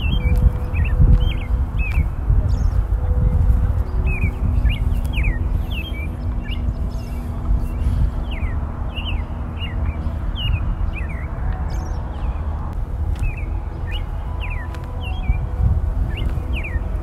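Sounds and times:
small birds chirping: 0.0s - 17.0s
steady low rumble: 0.0s - 17.0s.

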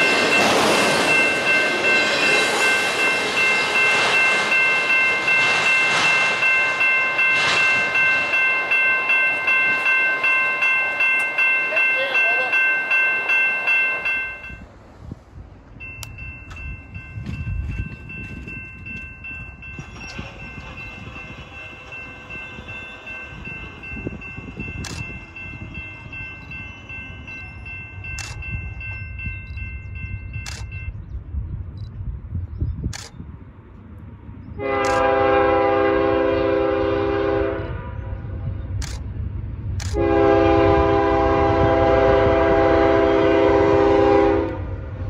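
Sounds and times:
steady high ringing tone: 0.0s - 14.7s, 15.8s - 31.2s
freight train low rumble: 0.0s - 45.0s
locomotive air horn blast: 34.6s - 37.9s, 39.9s - 44.6s.

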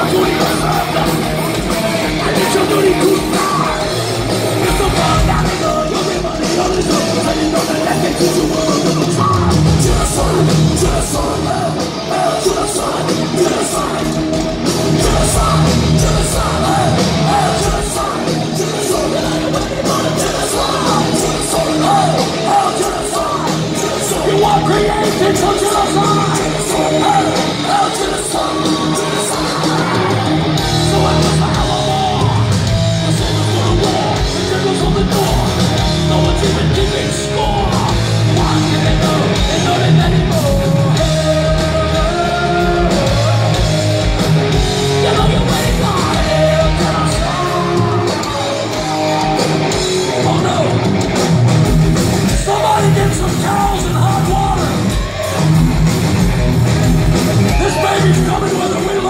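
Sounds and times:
heavy metal band playing live: 0.0s - 59.0s
shouted growled vocals: 52.3s - 59.0s.

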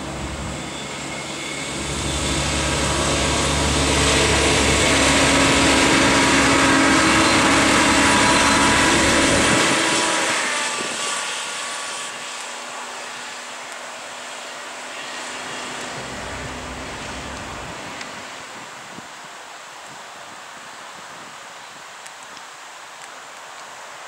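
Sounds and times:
train wheel noise: 0.0s - 12.6s, 15.0s - 18.6s
diesel railcar engine: 0.0s - 19.0s.

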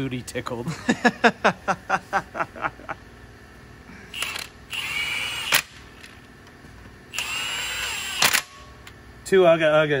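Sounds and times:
impact wrench whining: 4.1s - 6.2s, 7.1s - 8.9s.

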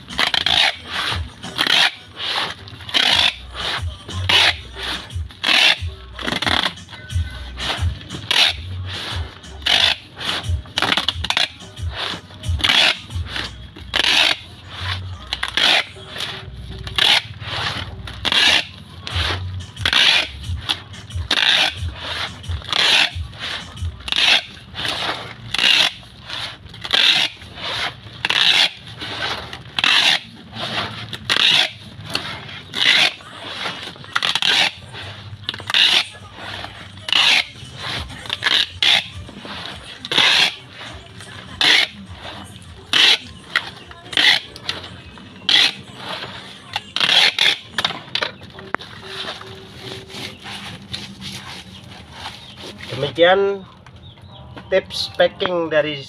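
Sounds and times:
packing tape unrolling: 0.0s - 53.2s.

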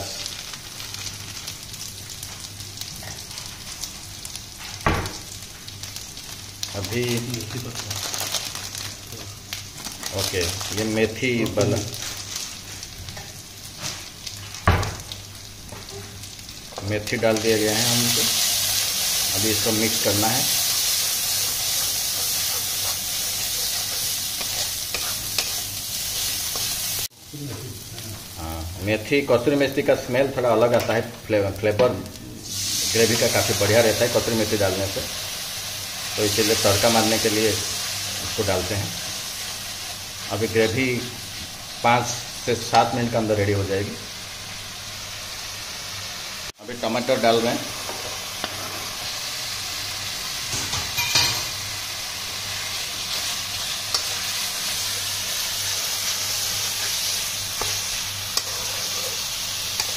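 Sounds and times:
paste sizzling in oil: 0.0s - 27.2s, 32.4s - 59.9s
metal spatula scraping pan: 57.6s - 59.9s.

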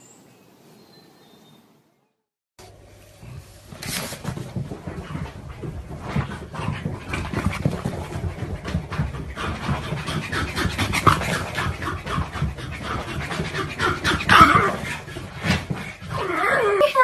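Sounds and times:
dog panting: 4.2s - 16.2s.

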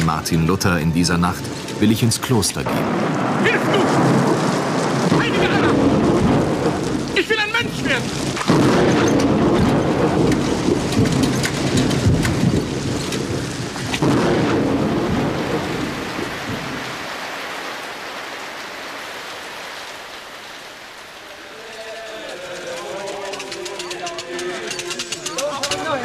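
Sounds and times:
thunder rolling: 0.0s - 17.3s
heavy rain: 0.0s - 26.0s.

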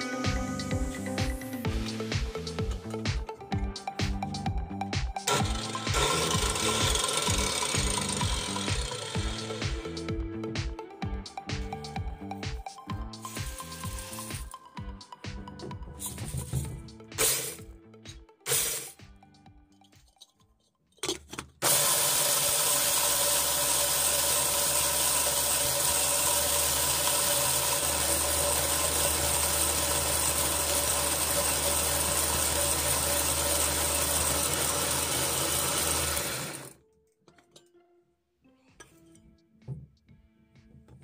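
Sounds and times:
angle grinder grinding corn: 4.9s - 17.7s, 18.5s - 19.0s, 21.6s - 36.8s.

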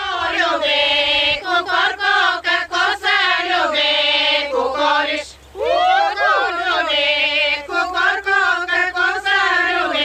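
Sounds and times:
women singing folk song: 0.0s - 10.0s.

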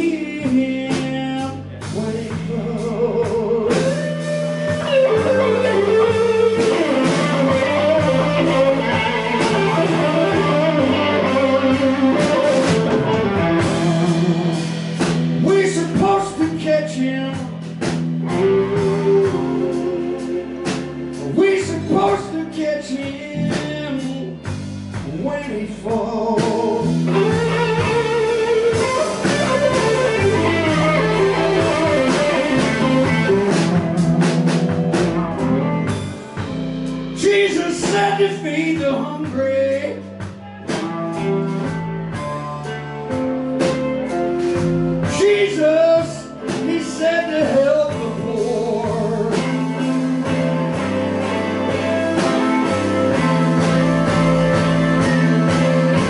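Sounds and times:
blues-rock band playing: 0.0s - 56.0s
electric guitar: 0.0s - 56.0s.

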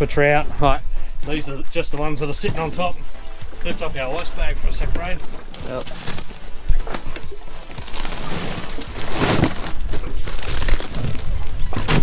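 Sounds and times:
ice crunching: 5.5s - 12.0s
plastic bag crinkling: 5.6s - 11.5s.

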